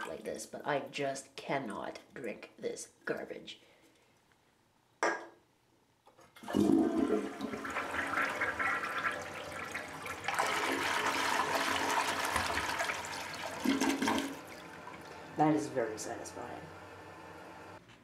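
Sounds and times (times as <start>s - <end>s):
toilet flushing water: 6.4s - 17.8s.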